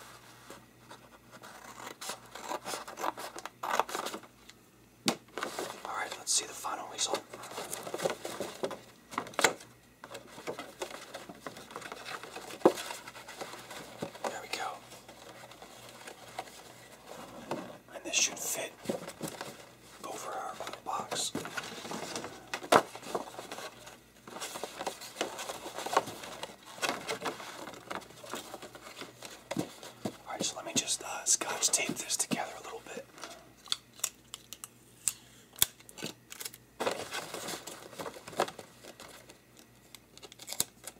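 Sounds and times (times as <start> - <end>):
paper rustling and scraping: 0.0 - 4.3, 5.3 - 6.2, 10.1 - 17.8, 18.8 - 30.8, 36.8 - 39.4.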